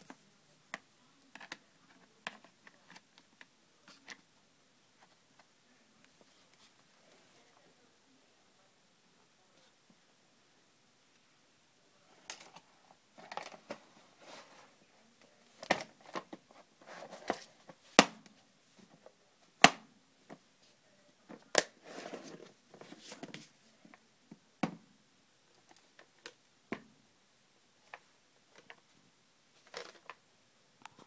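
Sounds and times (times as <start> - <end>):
plastic scraping and rattling: 13.2 - 14.6, 29.6 - 30.2.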